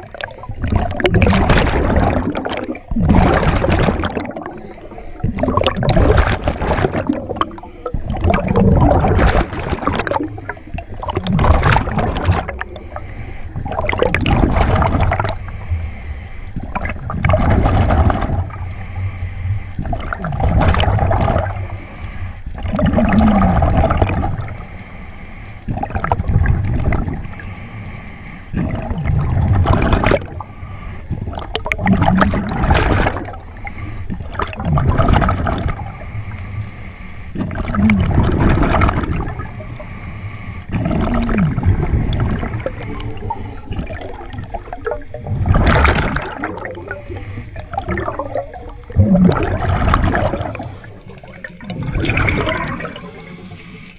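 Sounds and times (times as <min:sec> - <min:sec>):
exhaled bubbles gurgling: 0:00.0 - 0:24.9, 0:25.6 - 0:27.9, 0:28.5 - 0:53.9
diver inhaling through regulator: 0:10.0 - 0:11.2, 0:11.8 - 0:14.2, 0:14.8 - 0:17.1, 0:18.2 - 0:20.4, 0:21.4 - 0:22.7, 0:24.2 - 0:26.2, 0:27.0 - 0:29.0, 0:30.2 - 0:31.6, 0:33.2 - 0:34.5, 0:35.6 - 0:38.2, 0:39.0 - 0:44.4, 0:46.2 - 0:49.4, 0:50.1 - 0:53.9.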